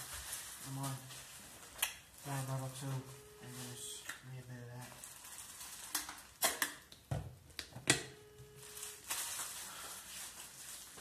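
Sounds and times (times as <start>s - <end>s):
plastic bottle crackling: 4.8s - 6.7s.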